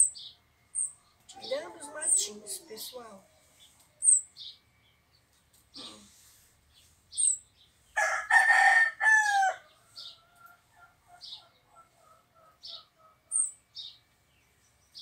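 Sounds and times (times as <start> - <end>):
small bird chirping: 0.0 - 8.0, 9.3 - 15.0
rooster crowing: 8.0 - 10.2.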